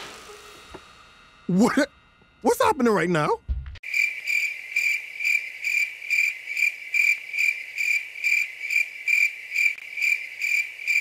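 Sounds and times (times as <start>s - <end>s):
crickets chirping: 3.8s - 11.0s.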